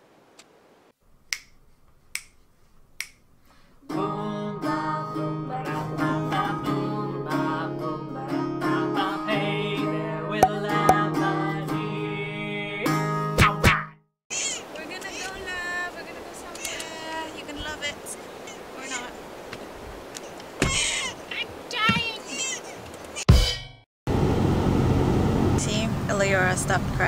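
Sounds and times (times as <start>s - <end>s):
finger snaps: 1.3s - 2.4s, 3.0s - 3.2s
plucked guitar: 10.4s - 11.2s, 12.9s - 13.9s.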